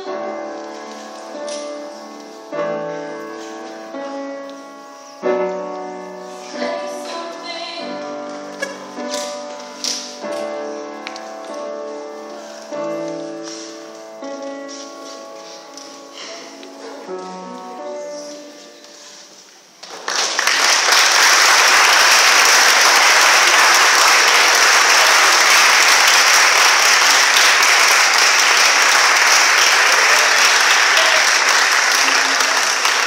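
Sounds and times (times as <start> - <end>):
piano notes ringing: 0.0 - 19.1
audience applause: 19.8 - 33.0.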